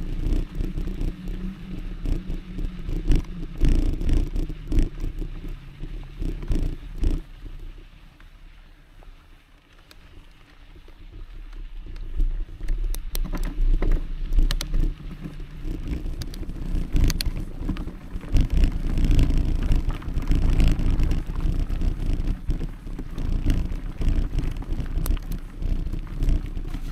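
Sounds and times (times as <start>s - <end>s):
wind on microphone: 0.0s - 7.9s, 11.8s - 26.9s
bike rattling over bumps: 0.0s - 26.9s
bike tyre rumble: 0.0s - 26.9s.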